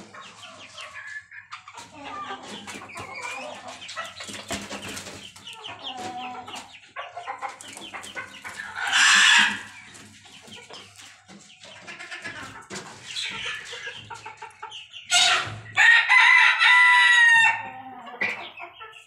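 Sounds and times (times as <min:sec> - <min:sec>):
chickens clucking softly: 0:00.0 - 0:19.0
rooster crowing: 0:15.8 - 0:17.7.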